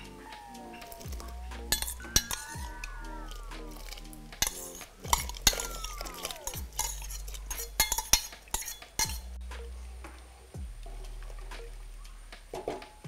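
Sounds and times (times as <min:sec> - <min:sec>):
wooden spatula stirring pot: 0:00.0 - 0:09.4
steel bowl clinking on metal pot: 0:00.9 - 0:09.3.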